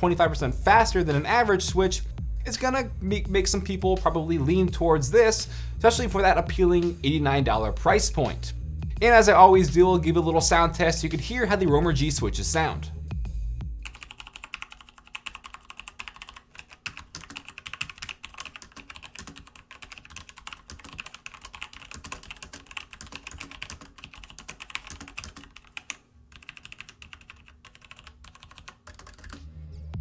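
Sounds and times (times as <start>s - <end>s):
mechanical keyboard typing: 13.8s - 29.4s.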